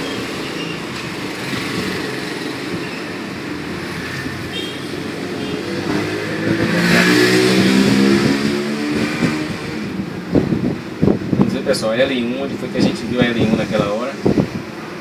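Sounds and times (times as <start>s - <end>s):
vehicle engine passing by: 0.0s - 11.2s.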